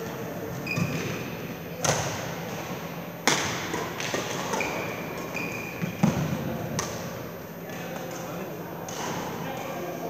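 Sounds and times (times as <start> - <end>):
shoes squeaking on court floor: 0.5 - 1.3, 4.1 - 6.4.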